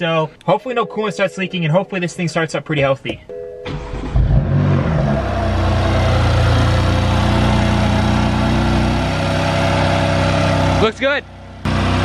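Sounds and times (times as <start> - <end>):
car engine idling: 3.2 - 12.0.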